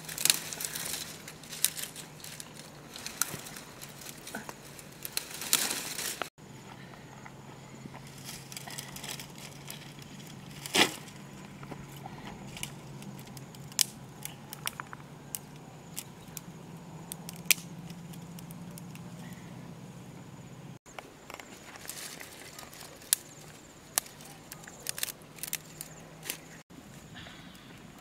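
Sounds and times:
sticks crackling and snapping: 0.0s - 6.3s, 8.0s - 19.4s, 21.2s - 26.6s
steady low hum: 0.0s - 21.6s.

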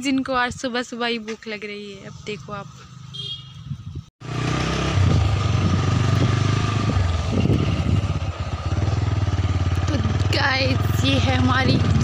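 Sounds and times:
scooter engine running: 4.2s - 12.0s.

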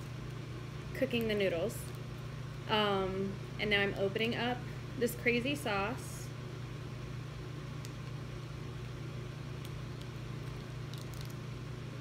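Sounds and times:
steady low hum: 0.0s - 12.0s
plastic sachet crinkling: 9.6s - 11.5s.

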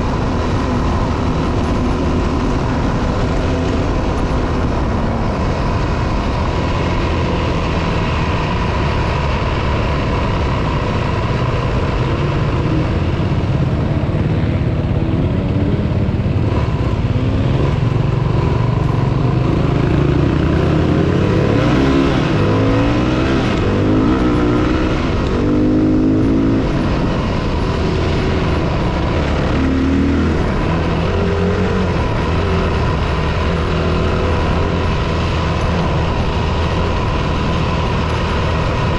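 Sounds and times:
dirt bike engine revving: 19.4s - 38.9s.

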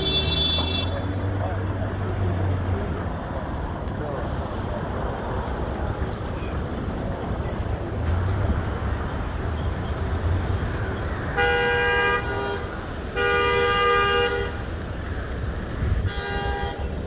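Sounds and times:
car horn honking: 0.0s - 1.2s, 11.3s - 14.7s, 16.0s - 17.0s
low street rumble: 0.0s - 17.0s.

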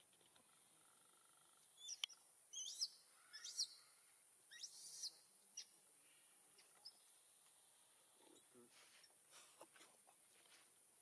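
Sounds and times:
high-pitched animal chirps: 2.6s - 3.8s, 4.5s - 5.7s.

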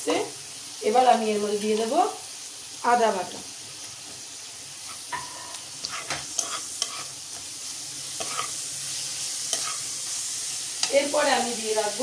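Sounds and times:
paste sizzling in oil: 0.0s - 12.0s
utensil scraping and clinking on pan: 4.9s - 7.4s, 8.1s - 8.6s, 9.4s - 10.0s.

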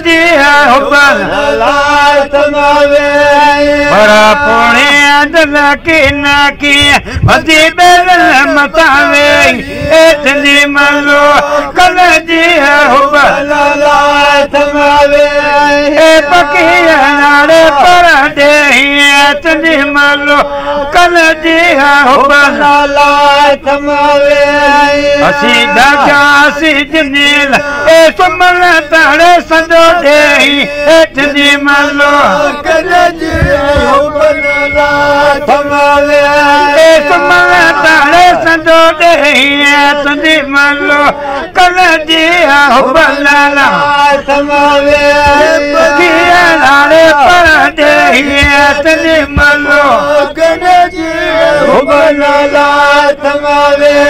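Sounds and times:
men singing folk chant: 0.0s - 54.0s
steady held vocal drone: 0.0s - 54.0s.

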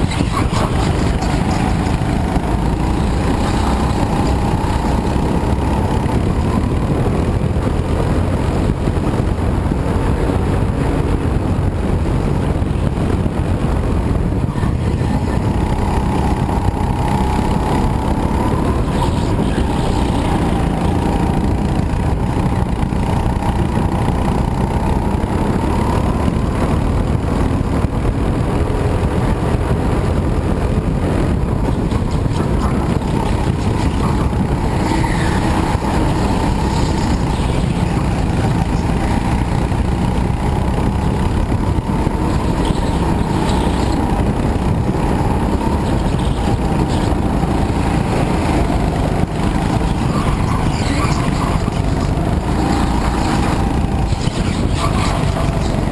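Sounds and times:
go-kart engine accelerating: 0.0s - 55.9s.

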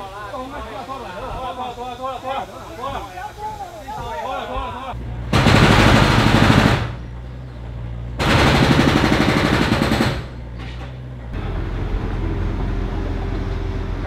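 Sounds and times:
engine running: 5.0s - 14.0s
rapid rattling strikes: 5.3s - 7.0s, 8.2s - 10.5s.

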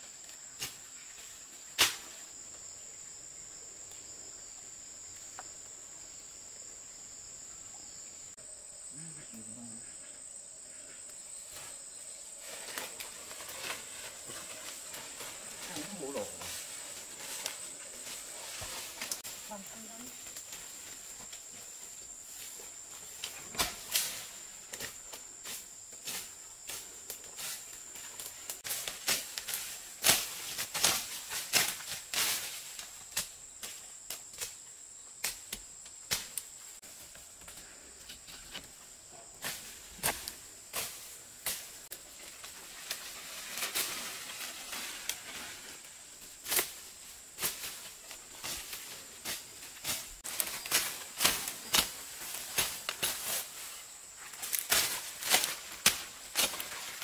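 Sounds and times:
snaps of cutting undergrowth: 0.6s - 2.2s, 12.4s - 21.6s, 23.1s - 38.8s, 39.4s - 45.6s, 46.3s - 57.0s.

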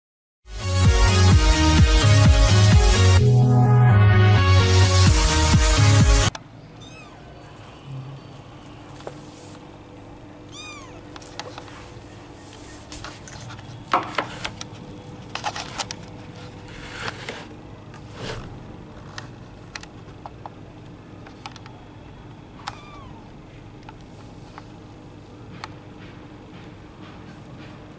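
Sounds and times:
kitten mewing: 6.8s - 7.5s, 10.4s - 11.2s, 22.6s - 23.4s.

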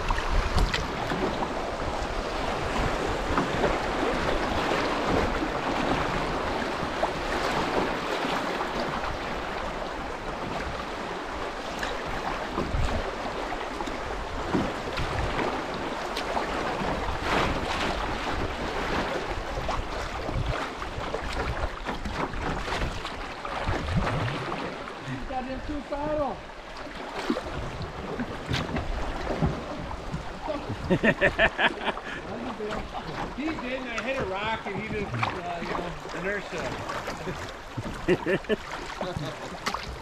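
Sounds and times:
river water rushing: 0.0s - 40.0s.

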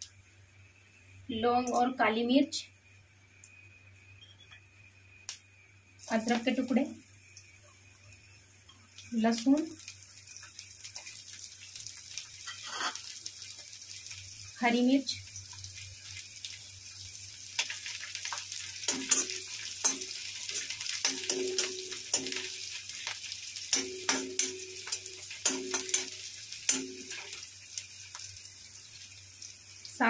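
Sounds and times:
food sizzling in hot oil: 0.0s - 30.0s
steel ladle scraping and clanking pan: 12.5s - 13.0s, 18.9s - 22.4s.

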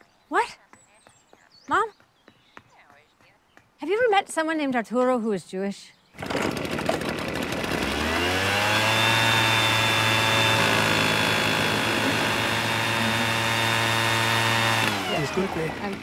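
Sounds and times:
power tool engine revving: 6.2s - 16.0s.

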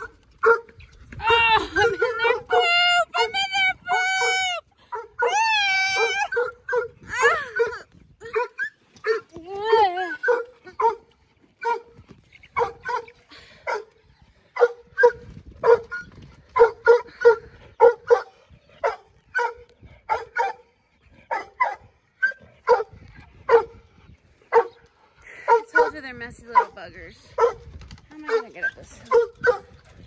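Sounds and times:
dog barking: 0.0s - 0.7s, 10.2s - 11.0s, 12.6s - 13.1s, 14.6s - 16.0s, 16.6s - 20.6s, 21.3s - 22.9s, 23.5s - 23.8s, 24.5s - 24.8s, 25.5s - 26.0s, 27.4s - 27.6s, 29.1s - 29.7s.

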